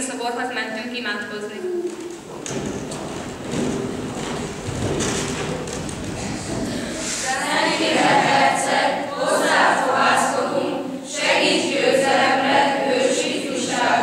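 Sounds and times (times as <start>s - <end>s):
choir singing: 6.8s - 14.0s.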